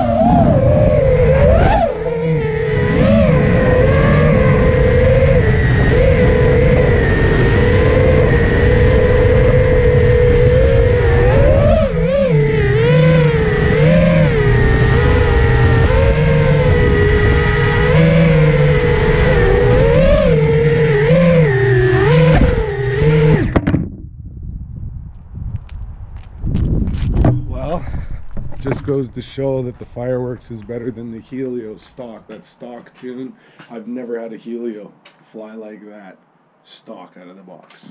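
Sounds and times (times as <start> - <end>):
drone motors whining in flight: 0.0 - 23.9.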